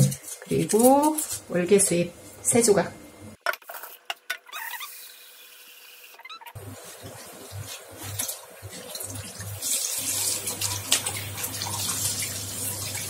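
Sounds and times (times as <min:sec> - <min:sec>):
water splashing into a steel sink: 0:08.0 - 0:13.0.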